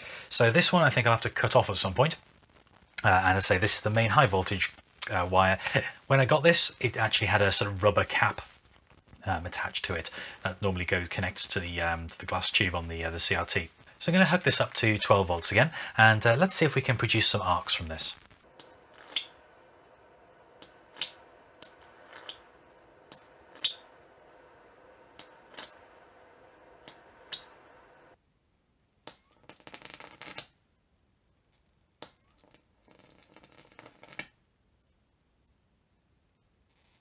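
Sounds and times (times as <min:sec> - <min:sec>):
faint steady hum: 0:00.0 - 0:37.0
electric arcs snapping: 0:16.8 - 0:19.3, 0:20.6 - 0:22.4, 0:23.1 - 0:23.8, 0:25.1 - 0:25.8, 0:26.8 - 0:27.6.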